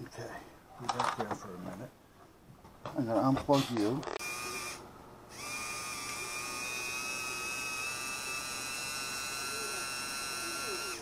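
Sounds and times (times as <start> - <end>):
electric motor whining: 4.2 - 11.0.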